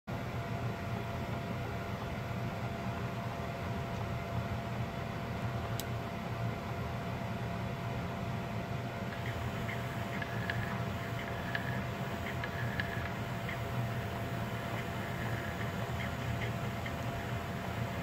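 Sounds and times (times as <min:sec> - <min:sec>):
low electrical hum: 0:00.1 - 0:18.0
thin steady whine: 0:08.4 - 0:18.0.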